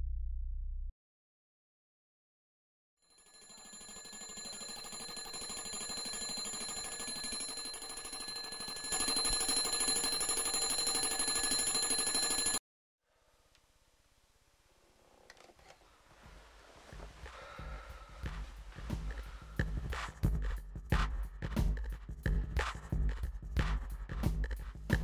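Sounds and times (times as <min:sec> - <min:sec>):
alarm clock bells ringing: 0:03.1 - 0:12.6.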